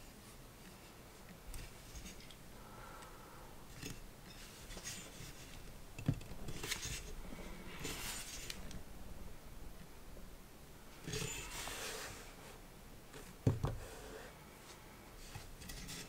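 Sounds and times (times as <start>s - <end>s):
metal stand rubbing scraping clicking: 11.0s - 12.2s.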